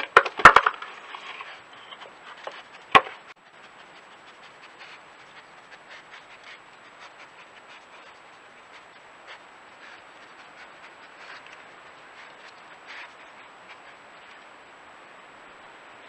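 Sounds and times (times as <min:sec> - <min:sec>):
wooden box clattering on stone: 0:00.0 - 0:01.4.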